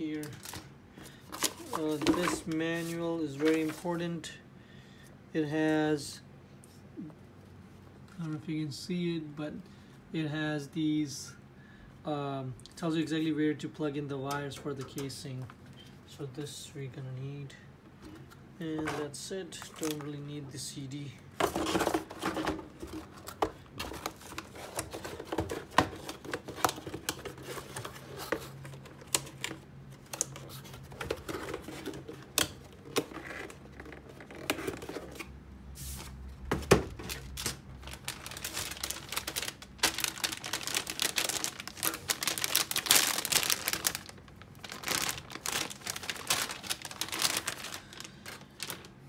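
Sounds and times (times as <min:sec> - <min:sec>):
cardboard box rustling: 0:01.3 - 0:03.8, 0:36.9 - 0:48.9.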